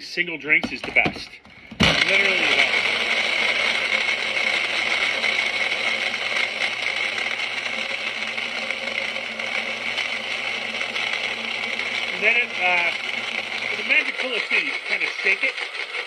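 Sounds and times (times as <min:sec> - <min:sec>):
blender crushing ice: 0:00.6 - 0:16.0.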